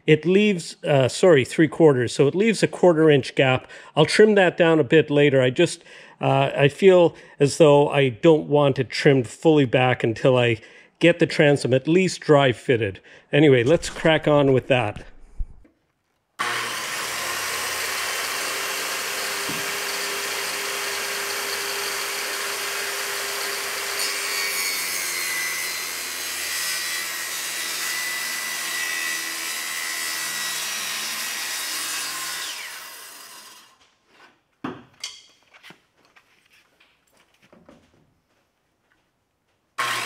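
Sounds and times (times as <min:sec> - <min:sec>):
circular saw cutting plywood: 0:16.4 - 0:33.8, 0:39.8 - 0:40.0.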